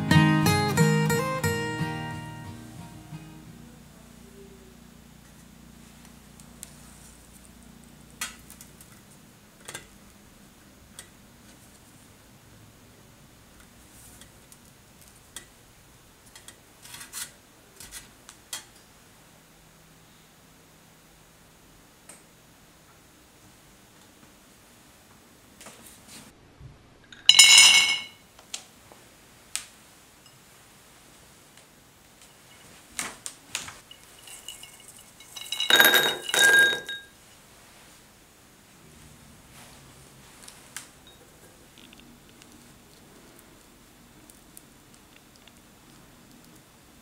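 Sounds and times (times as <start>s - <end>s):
glass bowl clinking: 27.1s - 28.2s, 33.8s - 37.2s, 41.0s - 41.3s
nuts clattering into glass bowl: 27.2s - 28.2s, 33.8s - 37.1s.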